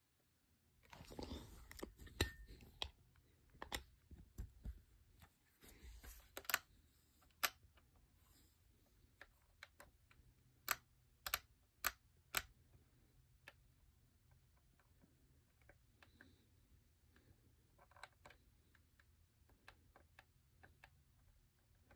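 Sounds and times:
clock radio buttons clicking: 9.6 - 12.5.

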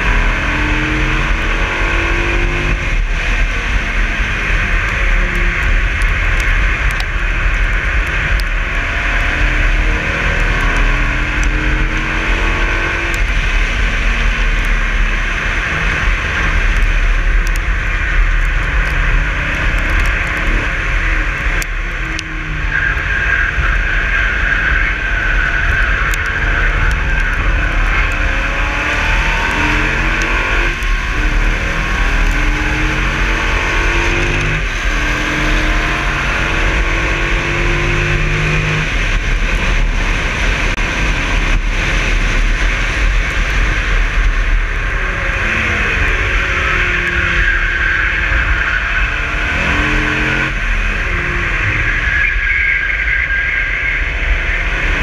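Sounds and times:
car engine revving through gears: 0.0 - 55.0.

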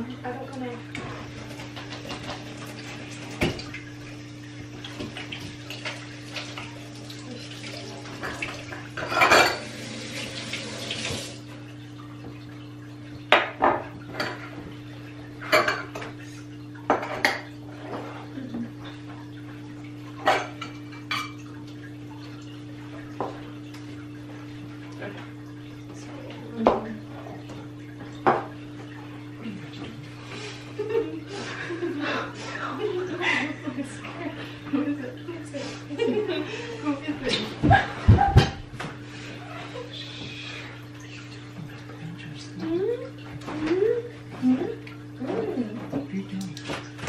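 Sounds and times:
water running: 0.0 - 47.0
glass jars and utensils clinking: 9.0 - 9.7.

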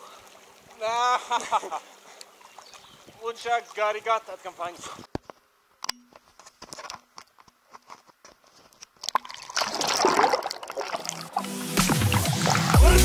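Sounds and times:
water splashing and sloshing: 0.0 - 3.8, 8.6 - 13.0
music: 11.3 - 13.0.

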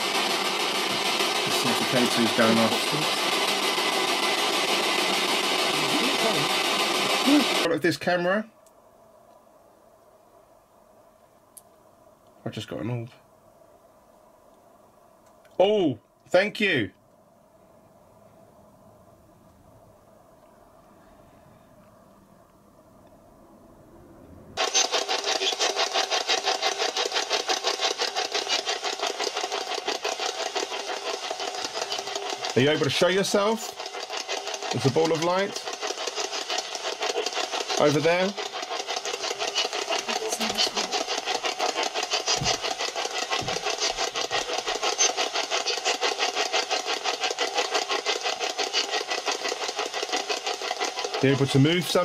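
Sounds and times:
fast-pulsing electronic static: 0.0 - 7.7, 24.6 - 52.0.

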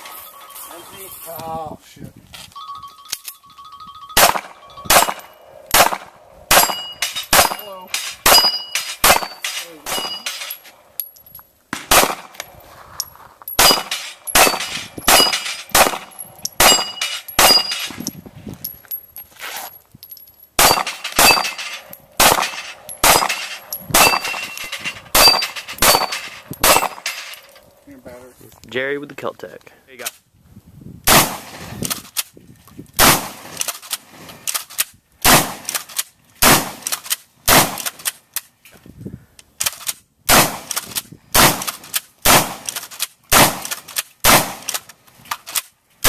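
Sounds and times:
steady beep: 0.0 - 1.4, 2.6 - 5.6
steel targets ringing: 0.0 - 1.5, 2.6 - 11.2, 13.5 - 18.0, 20.6 - 27.6
pistol shots: 4.2 - 10.4, 11.7 - 12.4, 13.6 - 17.9, 20.6 - 27.3, 31.1 - 31.6, 33.0 - 33.6, 35.2 - 35.7, 36.4 - 36.9, 37.5 - 37.9, 40.3 - 44.8.

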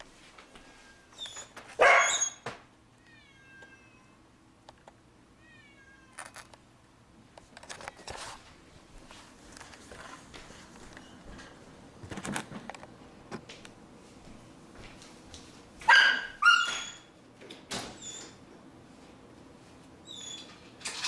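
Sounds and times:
cat meowing: 3.0 - 4.2, 5.4 - 6.3.

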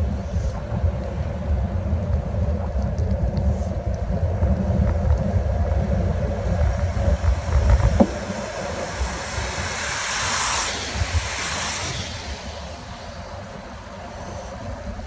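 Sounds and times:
wind buffeting microphone: 0.0 - 15.0
car tyres hissing on wet road: 3.4 - 15.0.

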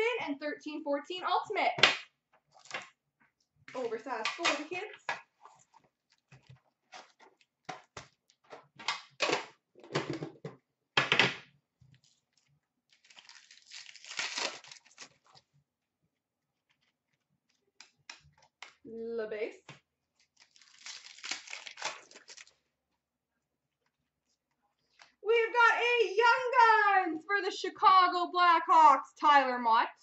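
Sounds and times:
foil wrapper tearing: 12.0 - 15.5, 20.2 - 22.6.

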